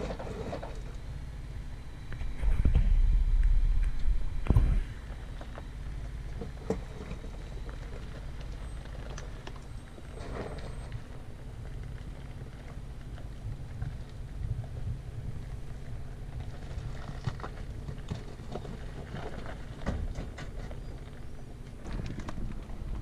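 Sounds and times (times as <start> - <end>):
gravel crackling under tyres: 0.0 - 23.0
truck engine at low speed: 0.0 - 23.0
wind buffeting microphone: 2.2 - 5.4.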